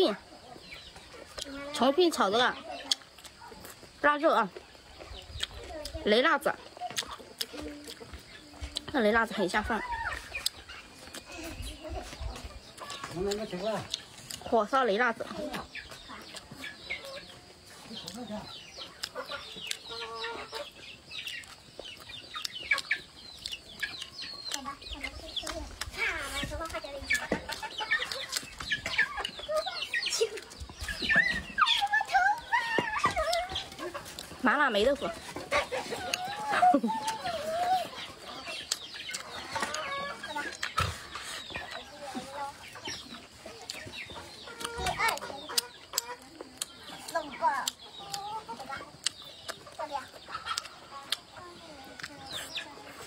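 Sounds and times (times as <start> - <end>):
chickens clucking: 0.0 - 53.0.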